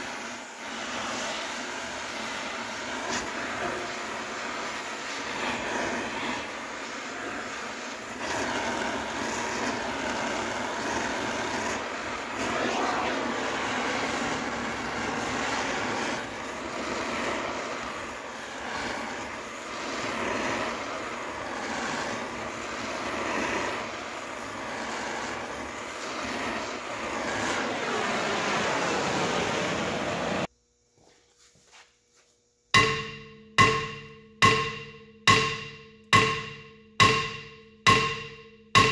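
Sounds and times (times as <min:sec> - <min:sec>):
torch flame rushing: 0:00.0 - 0:30.5.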